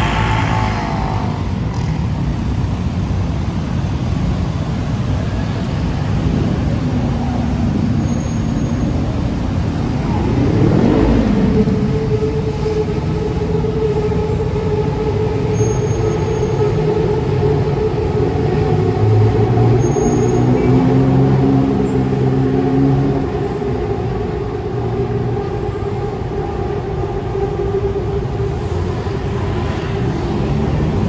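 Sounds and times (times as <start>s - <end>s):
vehicle passing close by: 0.0s - 2.2s, 9.2s - 13.7s
road traffic: 0.0s - 31.0s
steady engine hum: 0.0s - 31.0s.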